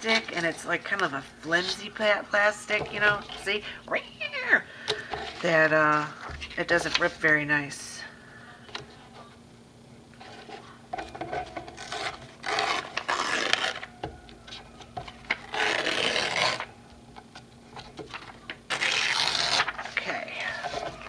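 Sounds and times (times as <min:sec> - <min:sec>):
paper and plastic rustling: 0:17.6 - 0:21.0.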